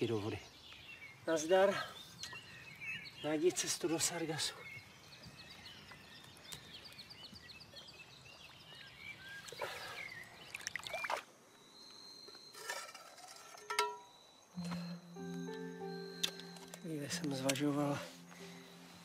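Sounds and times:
birds chirping: 0:00.0 - 0:12.6, 0:14.0 - 0:19.0
trickling water: 0:09.3 - 0:11.3
small water splashes: 0:09.3 - 0:11.4
steady high tone: 0:14.6 - 0:19.0.

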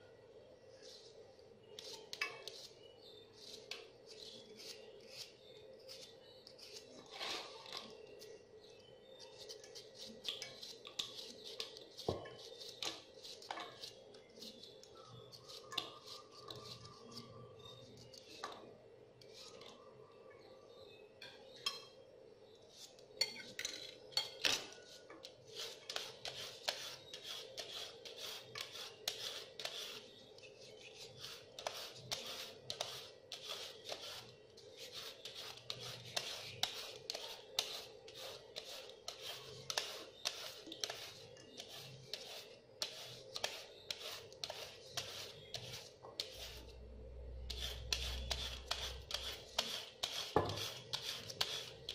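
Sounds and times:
peeler scraping carrot: 0:01.8 - 0:08.0, 0:09.2 - 0:18.4, 0:24.6 - 0:46.8, 0:47.4 - 0:51.9.

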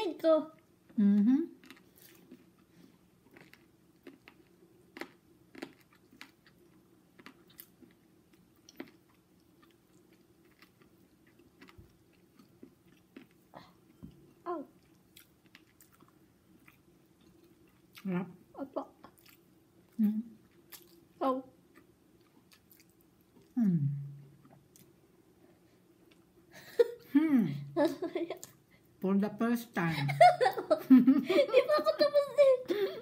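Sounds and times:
chewing and lip smacking: 0:03.3 - 0:18.1, 0:19.0 - 0:21.0, 0:21.7 - 0:23.6
person humming mm: 0:23.6 - 0:24.2.

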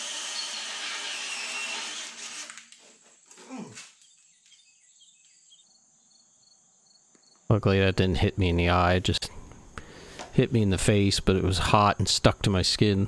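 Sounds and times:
drill boring into steel: 0:00.0 - 0:02.7.

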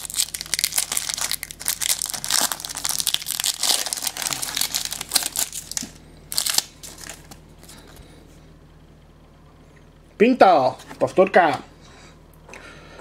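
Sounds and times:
foil pack tearing and crinkling: 0:00.0 - 0:07.8.

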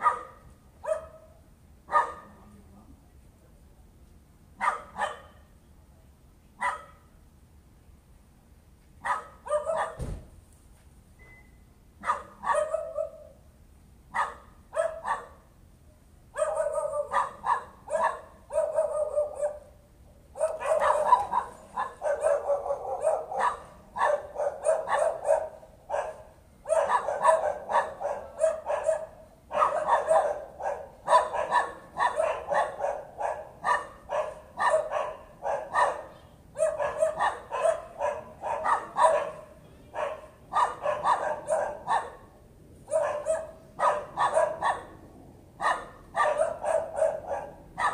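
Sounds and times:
dog barking: 0:00.0 - 0:02.4, 0:04.6 - 0:05.5, 0:06.6 - 0:07.1, 0:09.0 - 0:10.0, 0:12.0 - 0:13.4, 0:14.1 - 0:15.4, 0:16.3 - 0:42.3, 0:42.9 - 0:45.0, 0:45.6 - 0:47.9.

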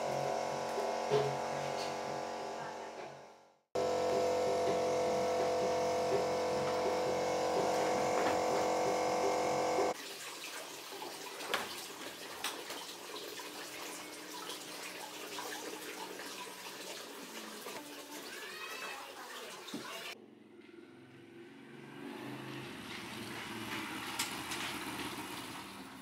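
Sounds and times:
running and splashing water: 0:09.8 - 0:20.2.

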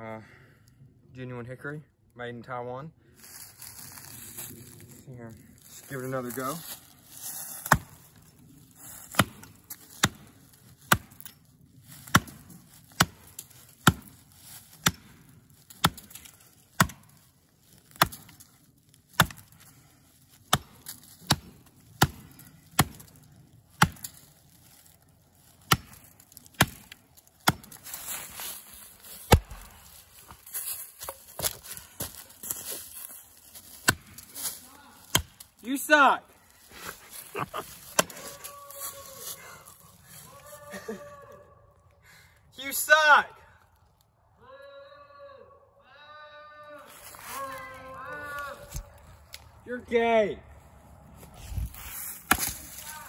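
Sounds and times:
rustling in dry leaves: 0:03.1 - 0:41.3, 0:46.8 - 0:49.6, 0:50.5 - 0:53.0
axe chopping into wood: 0:07.6 - 0:08.0, 0:09.1 - 0:11.3, 0:12.0 - 0:14.1, 0:14.8 - 0:17.2, 0:17.9 - 0:18.5, 0:19.1 - 0:19.6, 0:20.5 - 0:23.2, 0:23.8 - 0:24.2, 0:25.6 - 0:28.0, 0:29.3 - 0:30.3, 0:33.8 - 0:34.3, 0:35.0 - 0:35.5, 0:37.8 - 0:38.3, 0:52.2 - 0:52.9.

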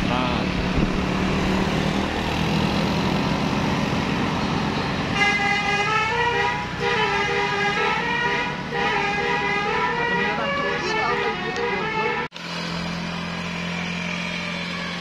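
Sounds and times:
road vehicles running: 0:00.0 - 0:15.0
multi-tone bus horn tune: 0:05.1 - 0:12.3.

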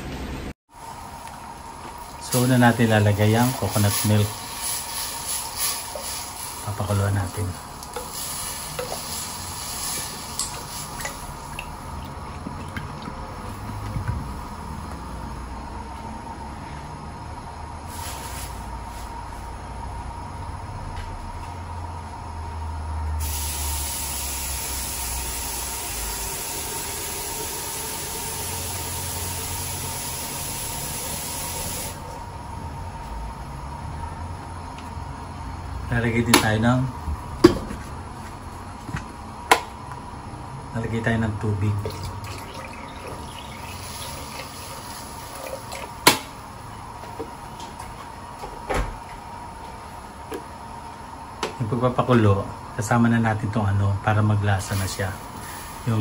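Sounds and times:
gas burner low rumble: 0:00.0 - 0:56.0
strong high hiss: 0:02.2 - 0:11.1, 0:23.2 - 0:32.1
water pouring into pot: 0:41.8 - 0:46.1.

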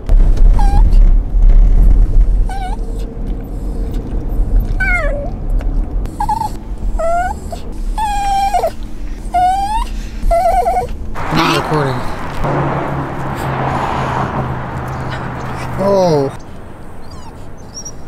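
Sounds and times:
car rumble: 0:00.0 - 0:18.0
dog whining: 0:00.4 - 0:01.0, 0:02.4 - 0:03.1, 0:04.7 - 0:05.4, 0:06.1 - 0:11.0, 0:16.9 - 0:18.0.

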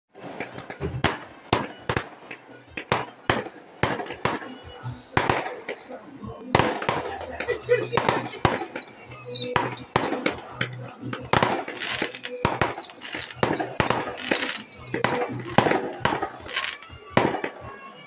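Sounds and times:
fireworks bangs and pops: 0:00.1 - 0:17.9
shrill fireworks whistles: 0:06.6 - 0:18.0.

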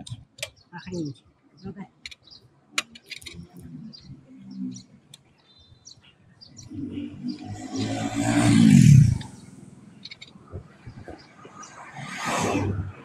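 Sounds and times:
faint bird chirps: 0:03.4 - 0:08.3.

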